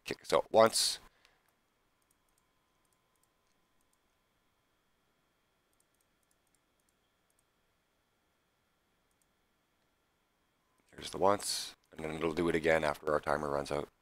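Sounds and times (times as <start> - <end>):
computer mouse clicks: 1.2 - 4.1, 5.7 - 7.5, 9.1 - 9.3.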